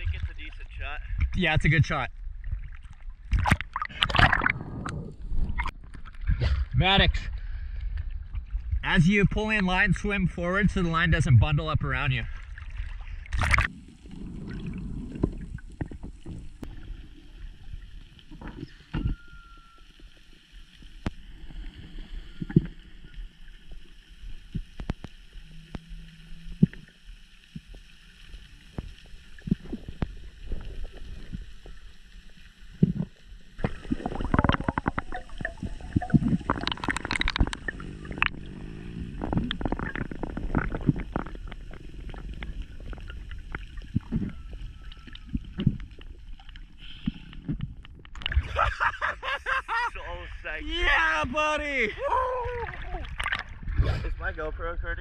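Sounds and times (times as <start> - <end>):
underwater low rumble: 0.0 - 50.6, 51.9 - 55.0
underwater knocks and clicks: 2.5 - 6.4, 15.1 - 16.8, 26.6 - 26.9, 32.7 - 38.6, 39.2 - 48.5, 53.1 - 53.8.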